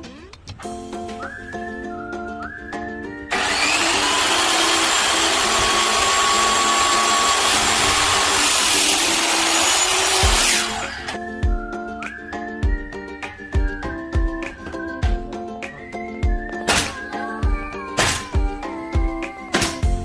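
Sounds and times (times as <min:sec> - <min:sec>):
background music: 0:00.0 - 0:20.0
miter saw cutting lumber: 0:03.3 - 0:11.2.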